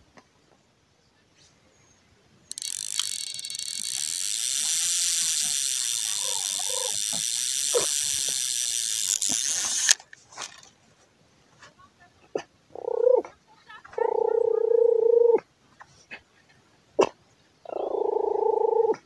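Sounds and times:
fishing reel ratchet buzzing: 2.5s - 10.0s.

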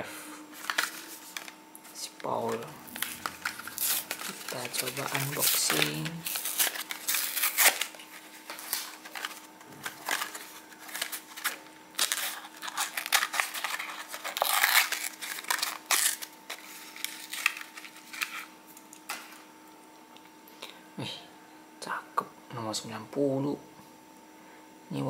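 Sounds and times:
plastic blister crackling: 2.2s - 19.2s
cardboard tearing: 2.9s - 18.5s.

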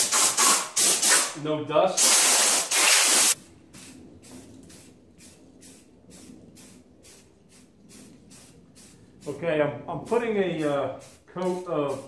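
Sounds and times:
aerosol can spraying puffs: 0.0s - 1.4s, 2.0s - 9.4s, 10.1s - 12.0s
compressed air blow gun hissing: 2.0s - 9.4s, 10.1s - 12.0s.

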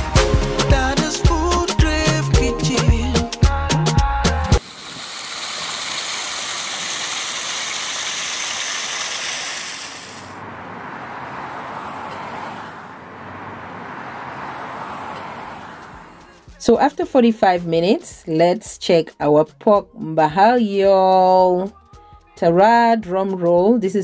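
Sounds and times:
outdoor background rush: 4.6s - 16.6s.

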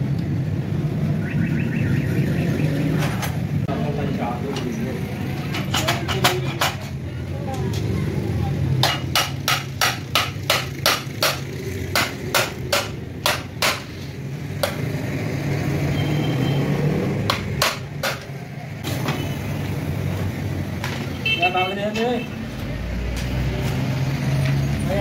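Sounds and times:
sharp metal taps: 5.3s - 7.0s, 8.8s - 14.0s.

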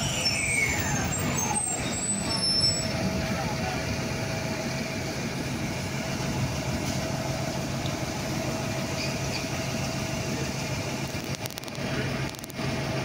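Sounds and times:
bus engine drone: 0.0s - 13.0s.

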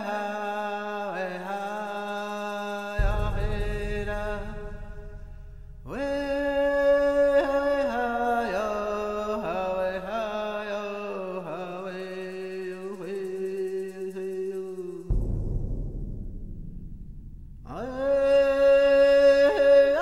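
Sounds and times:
person singing chant-like line: 5.9s - 15.2s, 17.7s - 20.0s.

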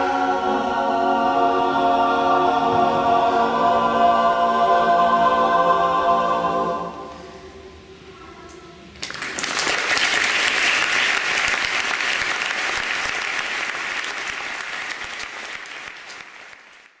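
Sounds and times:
audience applause: 9.0s - 17.0s.

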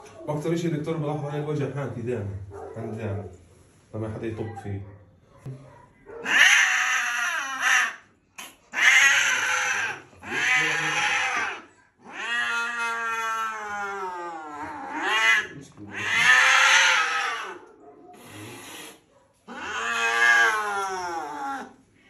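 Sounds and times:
cat yowling: 6.1s - 8.1s, 8.7s - 18.4s, 19.5s - 21.8s.

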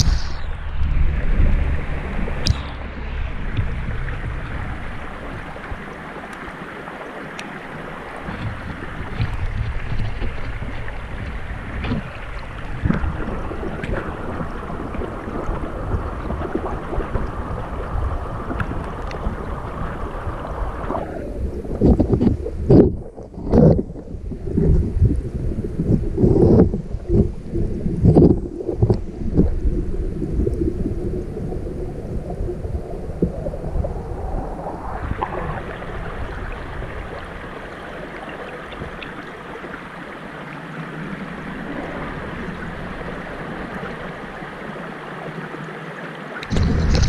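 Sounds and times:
stream water rushing underwater: 0.0s - 47.0s
faint clicks: 7.3s - 7.5s.

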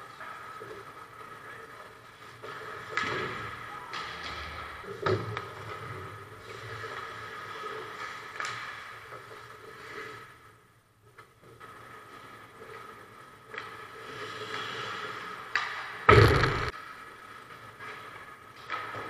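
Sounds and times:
skates scraping on ice: 0.0s - 10.7s, 11.5s - 19.0s
sharp knocks: 16.1s - 16.7s
steady hum: 16.1s - 16.7s.

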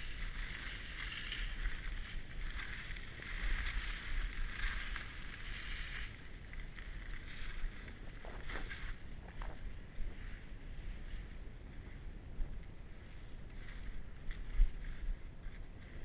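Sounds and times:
skis scraping over snow: 0.0s - 16.0s
wind rumbling on microphone: 0.0s - 16.0s.

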